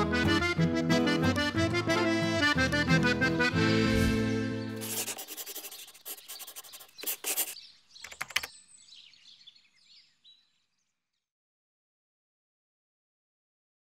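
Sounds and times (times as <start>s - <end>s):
accordion music: 0.0s - 7.6s
sharp clicks: 8.0s - 8.5s.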